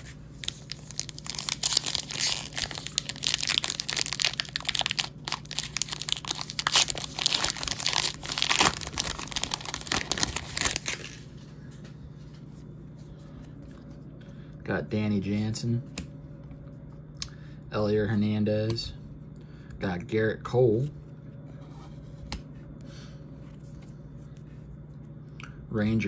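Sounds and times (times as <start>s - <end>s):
faint steady hum: 0.0s - 26.0s
wax paper wrapper tearing and crinkling: 0.4s - 11.3s.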